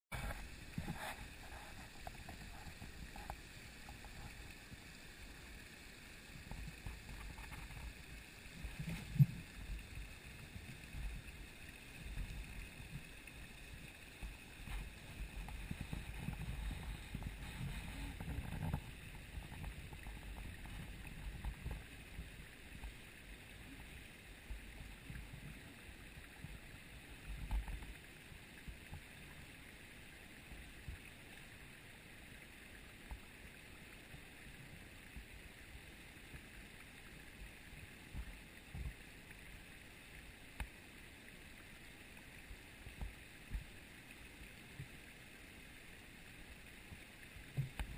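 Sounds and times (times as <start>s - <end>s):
small waterfall and creek rushing: 0.1s - 47.9s
low rumbling on microphone: 14.2s - 22.4s.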